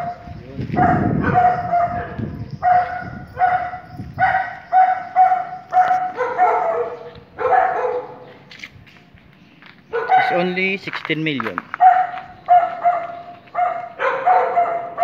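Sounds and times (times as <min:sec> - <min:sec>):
dog barking: 0:00.0 - 0:08.3, 0:09.9 - 0:10.6, 0:11.8 - 0:15.0.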